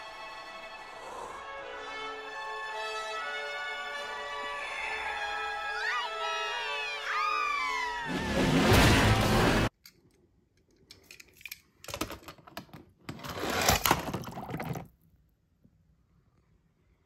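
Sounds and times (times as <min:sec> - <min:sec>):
film soundtrack music: 0:00.0 - 0:09.7.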